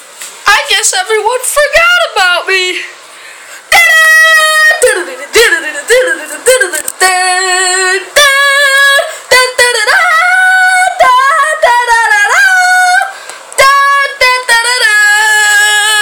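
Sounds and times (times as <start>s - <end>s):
woman singing high wordless notes: 3.7s - 16.0s.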